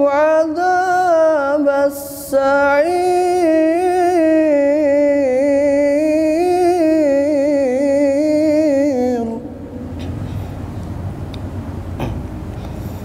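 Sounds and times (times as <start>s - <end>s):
man reciting in long melismatic note: 0.0s - 9.9s.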